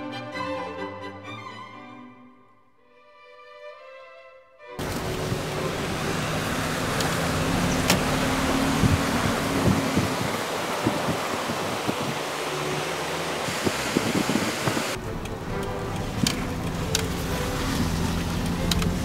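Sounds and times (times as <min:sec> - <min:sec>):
low engine hum: 0:04.8 - 0:19.0
tyres and wind noise: 0:04.8 - 0:19.0
light clicks: 0:18.4 - 0:19.0.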